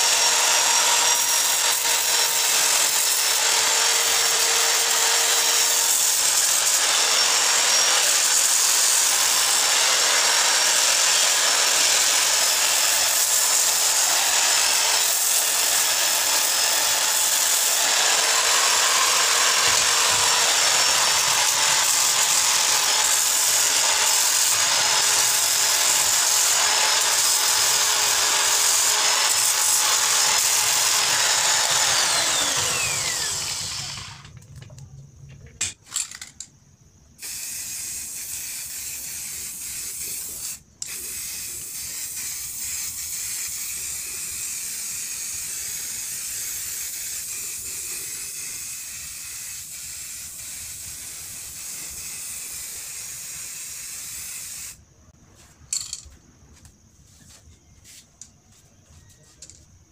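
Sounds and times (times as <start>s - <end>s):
electric drill with polishing pad: 0.0s - 34.3s.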